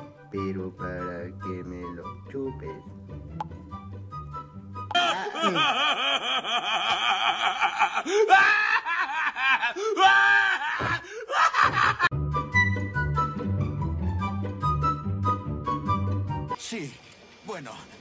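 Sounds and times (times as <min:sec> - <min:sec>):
background music with steady beat: 0:00.0 - 0:05.0
cartoon character laughing: 0:04.9 - 0:09.8, 0:10.4 - 0:12.1.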